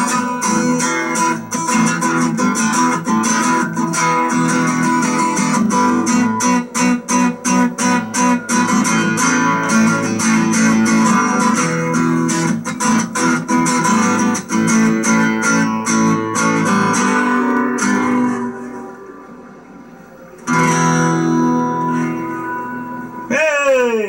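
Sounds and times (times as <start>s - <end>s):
acoustic guitar blues strumming: 0.0s - 24.0s.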